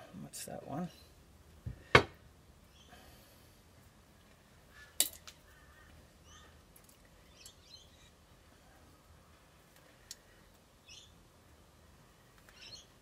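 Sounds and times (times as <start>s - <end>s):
faint bird chirps: 2.7s - 3.1s, 4.7s - 6.6s, 10.4s - 11.2s, 12.5s - 13.0s.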